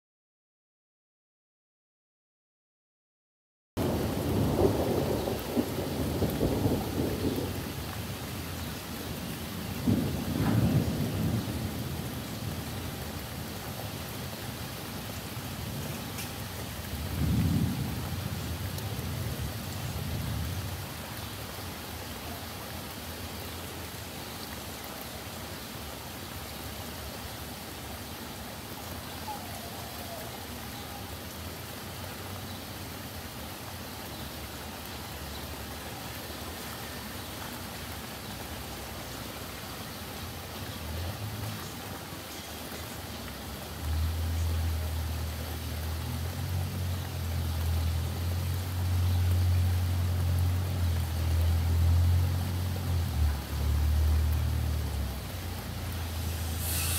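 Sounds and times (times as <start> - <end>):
thunder rumbling: 3.8 - 13.6, 15.6 - 21.1
rain falling on street and roof: 3.8 - 56.9.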